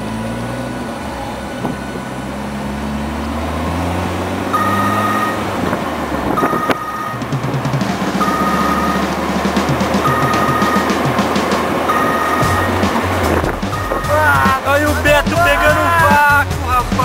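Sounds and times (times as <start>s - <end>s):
low synthesizer notes: 0.0s - 17.0s
higher synth tone: 4.5s - 5.6s, 7.9s - 16.9s.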